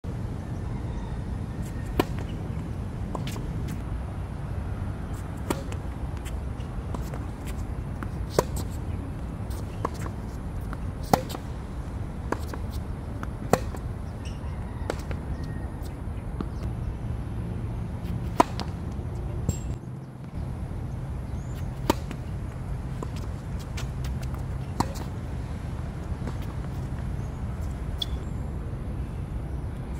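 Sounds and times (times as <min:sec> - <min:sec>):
tennis balls struck by racquets: 0:01.8 - 0:03.8, 0:05.2 - 0:15.4, 0:18.0 - 0:20.4, 0:21.6 - 0:28.2.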